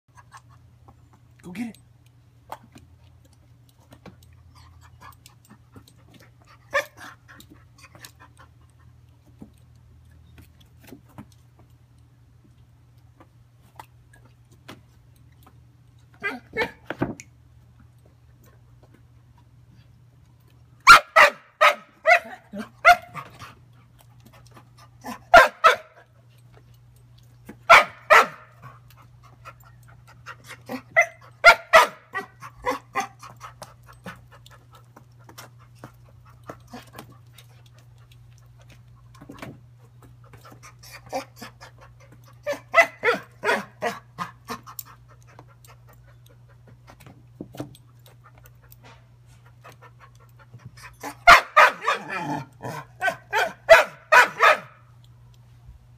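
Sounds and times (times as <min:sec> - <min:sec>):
dog barking: 0:20.9 - 0:23.2, 0:25.3 - 0:26.0, 0:27.7 - 0:28.5, 0:31.0 - 0:32.3, 0:42.5 - 0:44.0, 0:51.2 - 0:52.3, 0:53.0 - 0:54.8.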